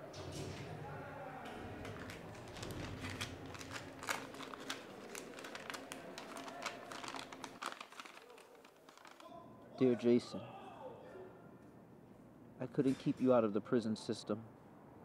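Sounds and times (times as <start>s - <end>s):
paper letter rustling: 1.8s - 9.4s.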